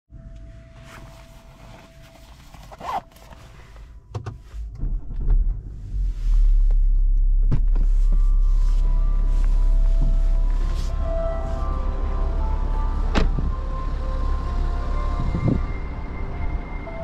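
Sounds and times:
diesel car engine idling: 4.6 - 17.0.

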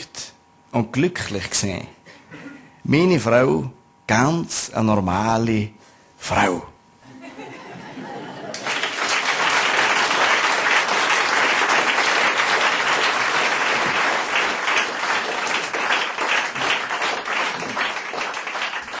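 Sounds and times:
audience applauding: 8.3 - 19.0.

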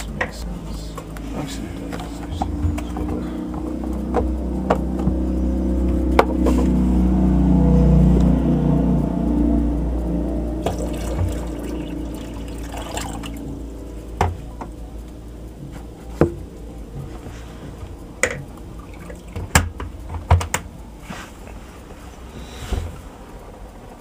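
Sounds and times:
water boiler rumbling and bubbling: 0.0 - 24.0
clicks and knocks: 19.3 - 20.7.

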